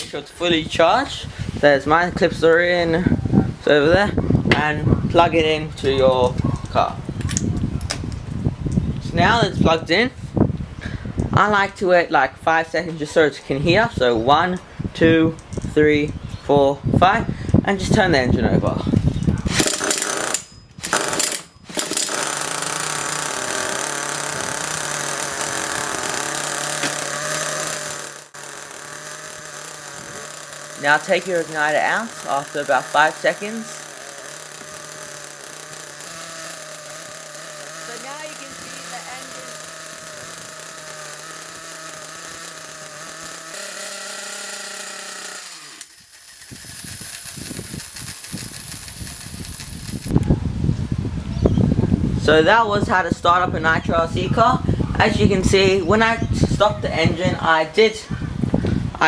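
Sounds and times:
cordless drill whining: 19.5 - 50.2
model nitro engine running: 19.5 - 50.3.

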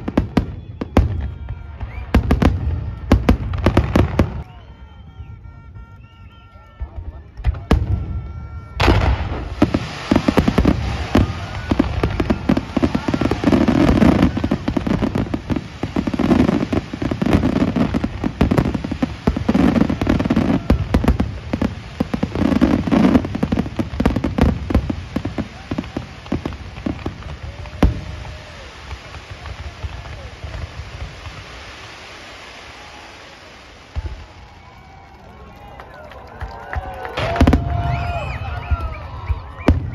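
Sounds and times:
fireworks bangs and crackling: 0.0 - 39.9.

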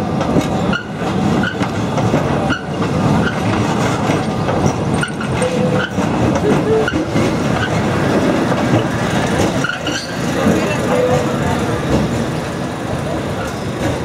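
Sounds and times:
tram wheels rumbling on rails: 0.0 - 14.0
high wheel squeal: 9.6 - 11.4.

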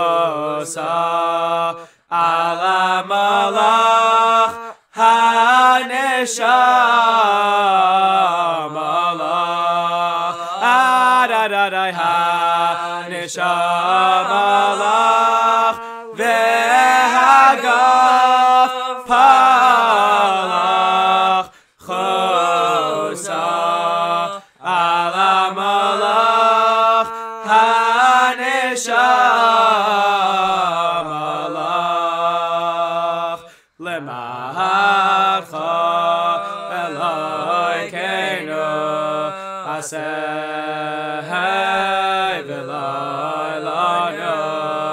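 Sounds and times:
men singing a cappella: 0.0 - 44.9.

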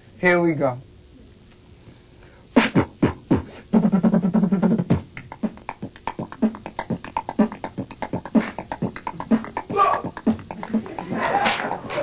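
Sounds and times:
human beatbox: 2.5 - 12.0.

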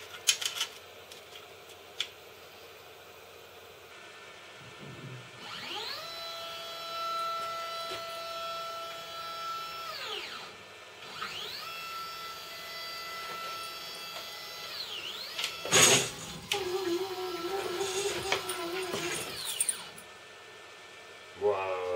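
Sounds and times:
stepper motors whining: 5.4 - 20.0.

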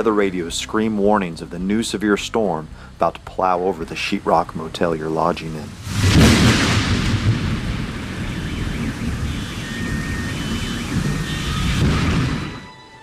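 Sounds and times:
rain hissing: 0.0 - 12.7
thunder rumbling: 4.3 - 12.7
thunder crash: 5.7 - 12.7.

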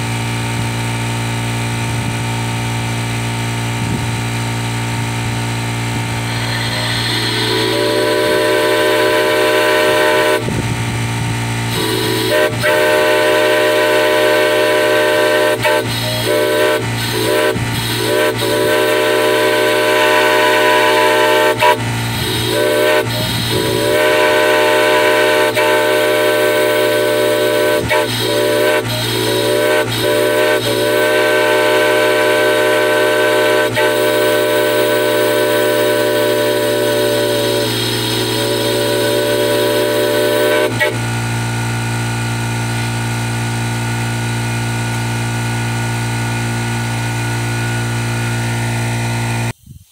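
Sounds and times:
multi-chime air whistle chord: 6.1 - 10.0.

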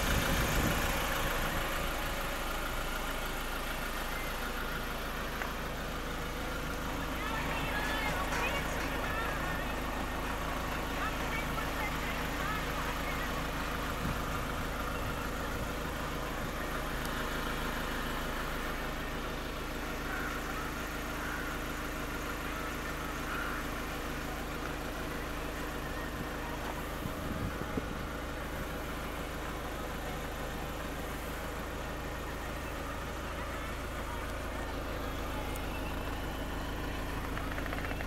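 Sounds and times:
vehicle engine idling: 0.0 - 38.0.

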